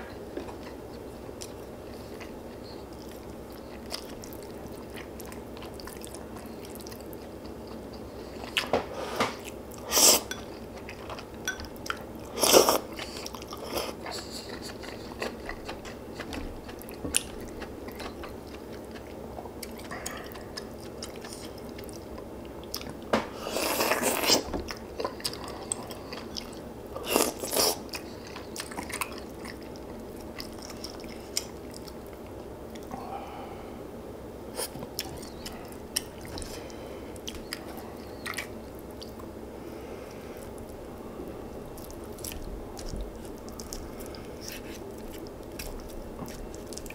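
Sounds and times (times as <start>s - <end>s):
person chewing and biting: 9.8s - 32.0s, 41.8s - 46.9s.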